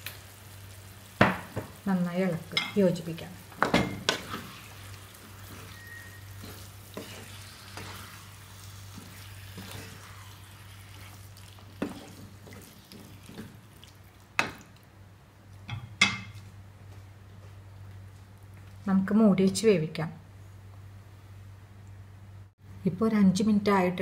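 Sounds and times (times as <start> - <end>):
soft sizzle: 0.0 - 22.6
spatula stirring in frying pan: 3.4 - 14.8.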